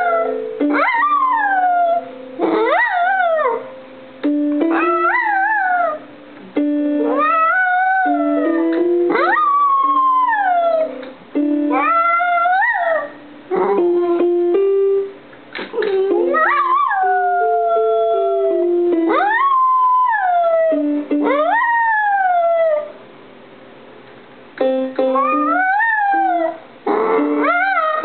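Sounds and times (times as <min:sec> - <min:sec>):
dog howling: 0:00.0 - 0:03.7, 0:04.7 - 0:06.0, 0:07.1 - 0:10.9, 0:11.7 - 0:13.8, 0:15.8 - 0:22.9, 0:25.2 - 0:28.0
piano music: 0:00.0 - 0:23.1, 0:24.6 - 0:28.0.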